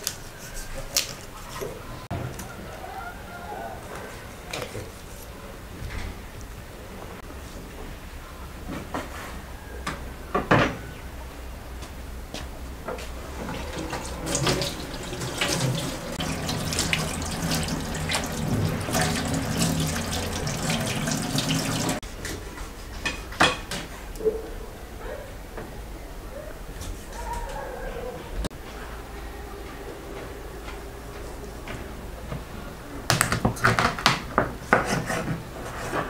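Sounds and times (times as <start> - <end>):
tap water running and splashing: 13.3 - 22.0.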